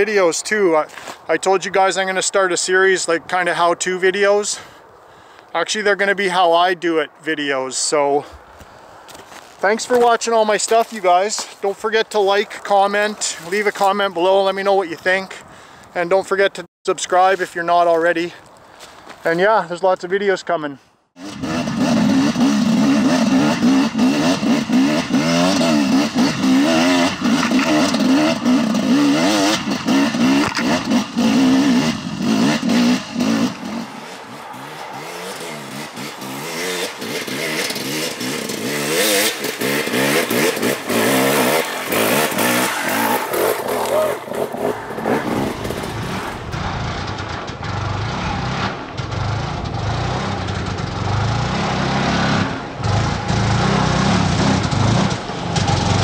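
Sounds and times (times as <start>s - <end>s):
dirt bike engine revving: 21.2s - 56.0s.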